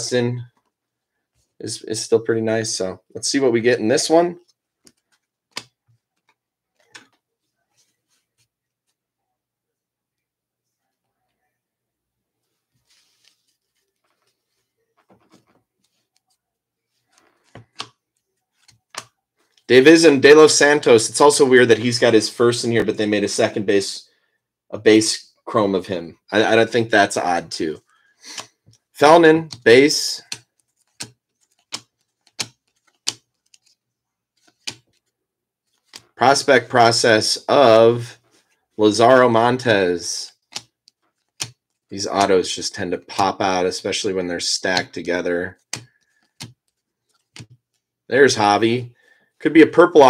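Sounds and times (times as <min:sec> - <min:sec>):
cards rubbing and sliding: 0:12.7 - 0:19.6, 0:28.3 - 0:35.1
trading cards snapping: 0:30.3 - 0:33.8, 0:34.4 - 0:34.9.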